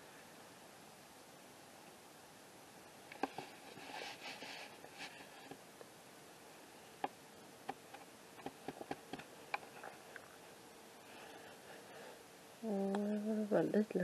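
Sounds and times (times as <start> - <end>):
soft rustling: 3.2 - 5.6.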